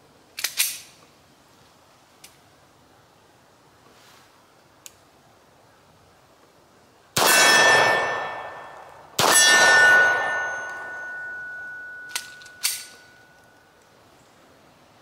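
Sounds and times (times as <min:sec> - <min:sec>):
pistol shots: 0:07.2 - 0:12.9
steel target ringing: 0:07.2 - 0:13.4.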